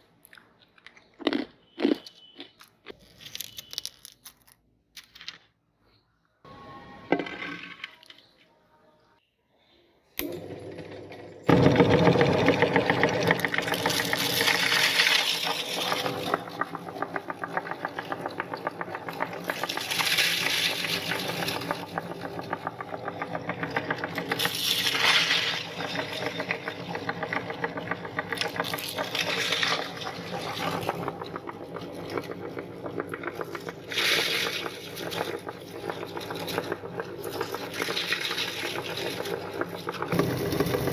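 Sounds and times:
cereal crunching in grinder: 0.8s - 5.2s, 11.5s - 40.9s
electric meat grinder motor humming: 10.2s - 40.9s.

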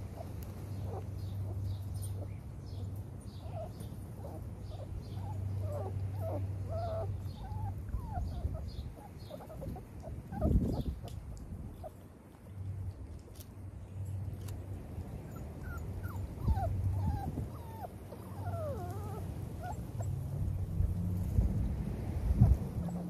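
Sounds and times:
puppies whining and whimpering: 0.2s - 2.3s, 2.9s - 11.1s, 15.2s - 20.2s.

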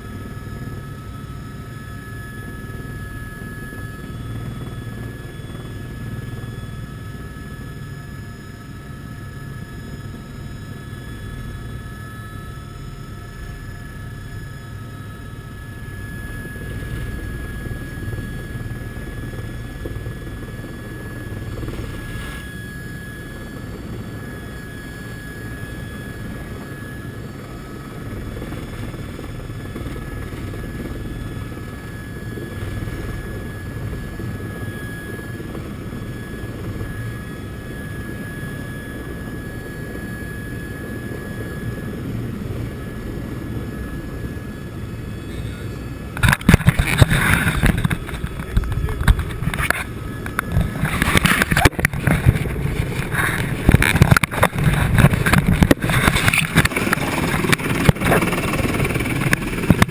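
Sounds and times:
helicopter rotor rumble: 0.0s - 59.9s
high engine whine: 0.0s - 59.9s.

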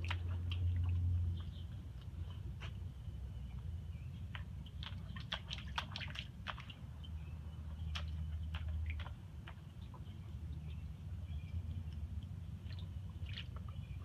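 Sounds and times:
low steady hum: 0.0s - 14.0s
puppy splashing in water: 0.0s - 14.0s.

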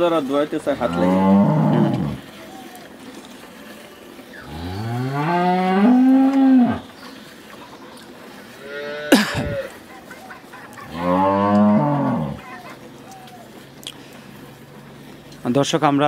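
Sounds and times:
cow mooing: 0.8s - 2.3s, 4.4s - 6.9s, 10.8s - 12.4s.

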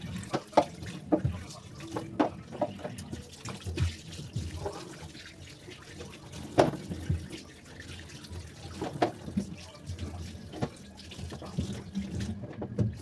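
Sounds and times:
tap water splashing in sink: 0.0s - 13.0s
knocks and clatter at sink: 0.1s - 4.8s, 6.3s - 7.4s, 8.7s - 13.0s.

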